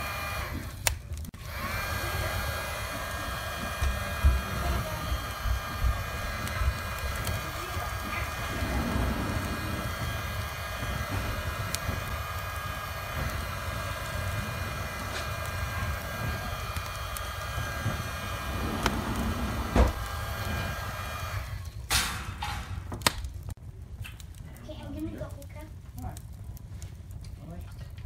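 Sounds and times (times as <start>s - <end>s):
electric blower whining: 0.0s - 21.8s
wood fire crackling: 0.0s - 28.0s.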